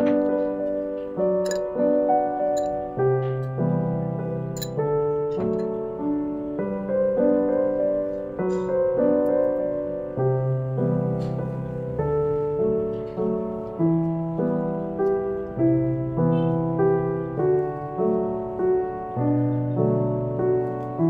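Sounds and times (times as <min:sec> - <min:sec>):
soft piano music: 0:00.0 - 0:21.0.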